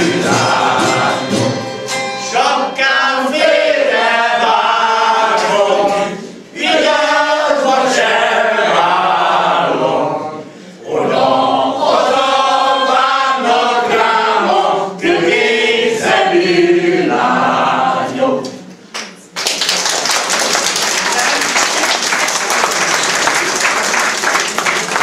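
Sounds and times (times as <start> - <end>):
men singing without instruments: 0.0 - 8.8
breaths between phrases: 10.4 - 10.8.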